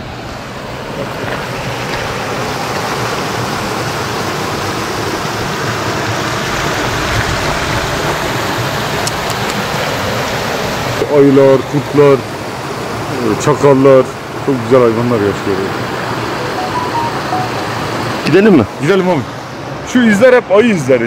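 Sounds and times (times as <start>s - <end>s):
stream babbling: 0.1s - 19.8s.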